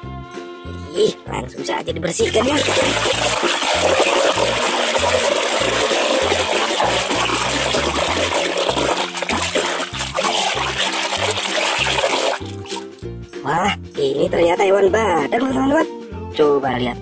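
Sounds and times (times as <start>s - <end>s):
hand splashing in soapy water: 2.2s - 13.0s.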